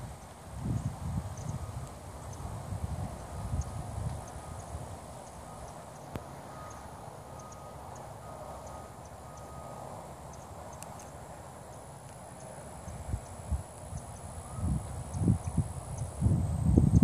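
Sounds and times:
wind rumble on microphone: 0:00.0 - 0:06.3, 0:12.8 - 0:17.0
click: 0:10.7 - 0:11.1.

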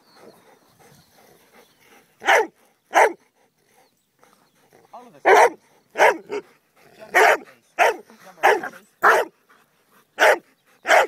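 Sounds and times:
dog barking: 0:02.2 - 0:03.2, 0:05.3 - 0:06.4, 0:07.2 - 0:09.3, 0:10.2 - 0:11.0.

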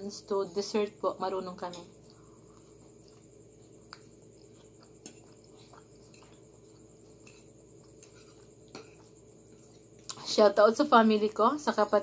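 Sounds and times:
crickets trilling: 0:00.0 - 0:12.0
person chewing food: 0:01.7 - 0:10.2.

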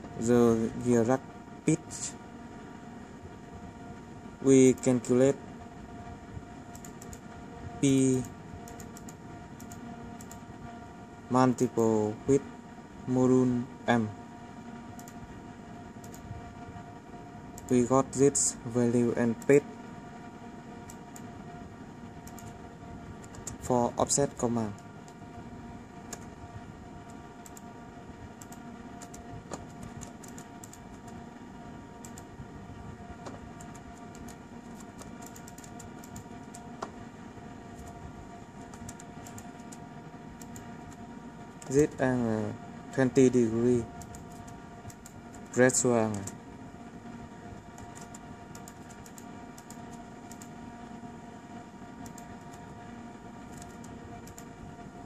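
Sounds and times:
electrical hum: 0:00.0 - 0:55.0
laptop keys typing: 0:06.6 - 0:07.2, 0:08.1 - 0:10.4, 0:14.9 - 0:15.2, 0:16.0 - 0:16.3, 0:22.2 - 0:22.6, 0:23.2 - 0:23.6, 0:26.1 - 0:26.3, 0:27.0 - 0:27.7, 0:28.4 - 0:31.2, 0:32.0 - 0:32.3, 0:33.2 - 0:37.0, 0:37.7 - 0:38.0, 0:38.6 - 0:39.8, 0:40.4 - 0:42.0, 0:43.9 - 0:46.4, 0:47.6 - 0:50.6, 0:52.0 - 0:52.7, 0:53.5 - 0:54.5
typing on laptop keyboard: 0:28.4 - 0:31.2, 0:33.6 - 0:36.6, 0:47.8 - 0:50.5, 0:53.5 - 0:54.5.

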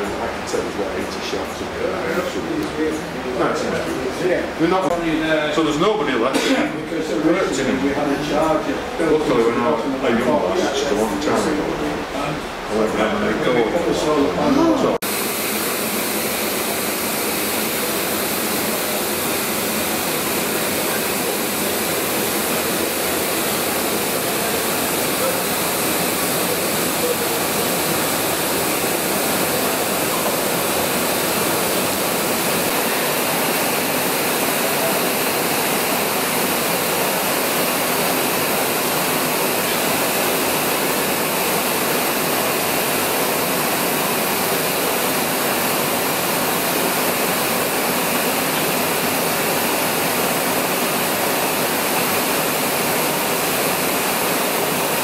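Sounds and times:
blowlamps hissing: 0:15.0 - 0:55.0.

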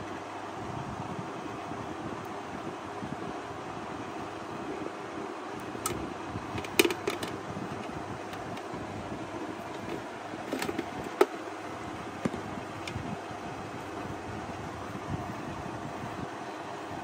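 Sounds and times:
steady background hiss: 0:00.0 - 0:17.0
plastic housing clicks and knocks: 0:06.6 - 0:08.7, 0:09.7 - 0:11.4.

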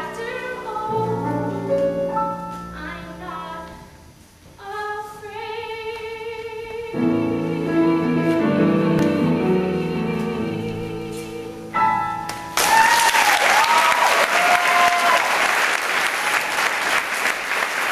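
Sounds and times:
woman singing with vibrato: 0:00.0 - 0:01.8, 0:02.7 - 0:04.0, 0:04.6 - 0:12.1
piano chords: 0:00.0 - 0:12.9
crowd whooping and cheering: 0:12.6 - 0:16.7
audience applause: 0:12.6 - 0:17.9.

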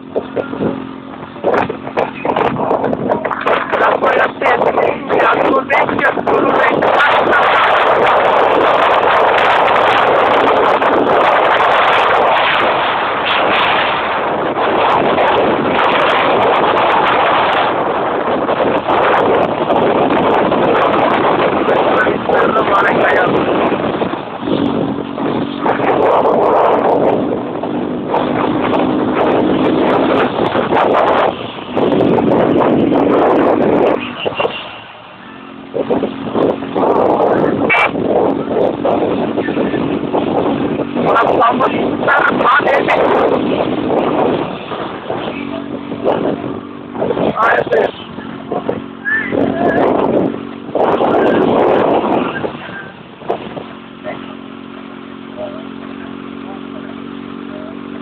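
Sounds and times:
rushing noise surges: 0:00.0 - 0:58.0
minibus engine running: 0:17.7 - 0:58.0.

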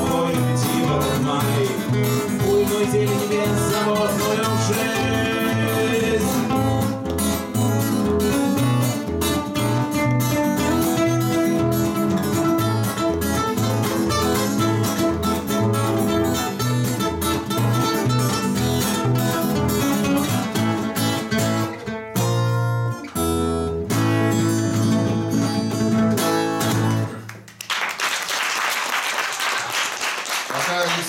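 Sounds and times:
acoustic guitars strumming: 0:00.0 - 0:27.4.

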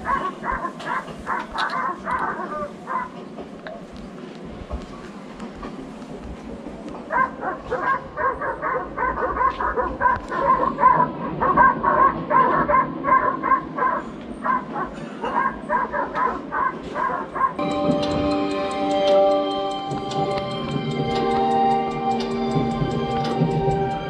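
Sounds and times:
dog barking rapidly: 0:00.0 - 0:03.2, 0:07.1 - 0:17.6.

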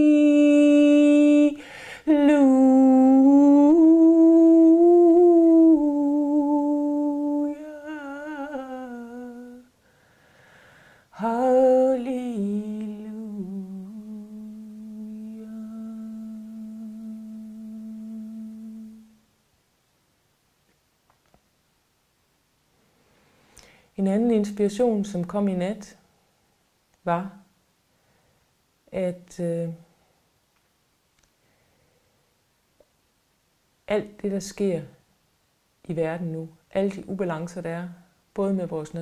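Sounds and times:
woman singing long held notes: 0:00.0 - 0:09.8, 0:11.1 - 0:19.2
woman breathing in: 0:01.6 - 0:02.1, 0:09.8 - 0:11.1, 0:23.1 - 0:23.9.

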